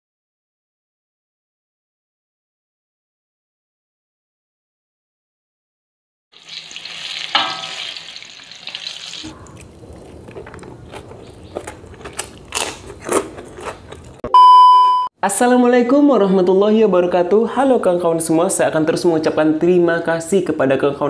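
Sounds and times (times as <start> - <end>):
chewing: 9.2 - 14.3
eating with fingers from plate: 9.3 - 14.2.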